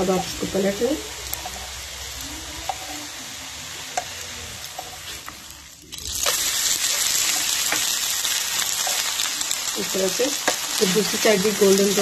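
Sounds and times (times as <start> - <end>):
pancake sizzling in butter: 0.0 - 12.0.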